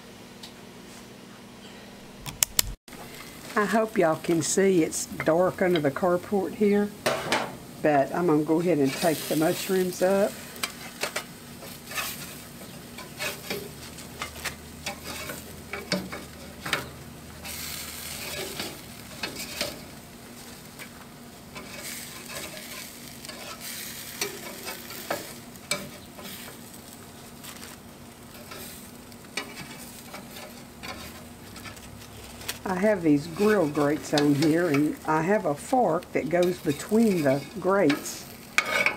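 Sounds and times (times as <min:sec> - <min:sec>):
mushrooms sizzling on grill: 0:02.9 - 0:38.9
metal spatula scraping grates: 0:08.7 - 0:26.7, 0:27.5 - 0:35.6, 0:36.3 - 0:38.9.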